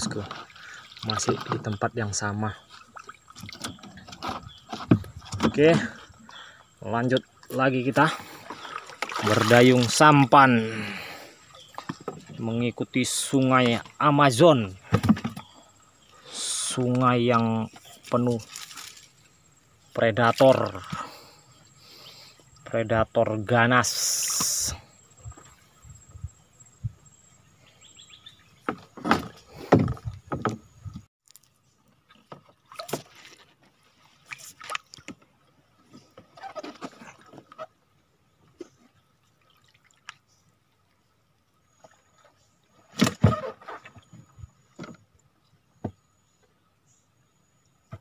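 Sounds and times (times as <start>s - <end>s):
paddle splashing in water: 0.0s - 1.8s, 2.6s - 6.5s, 7.4s - 12.4s, 31.9s - 37.8s, 38.4s - 40.4s, 41.7s - 45.0s.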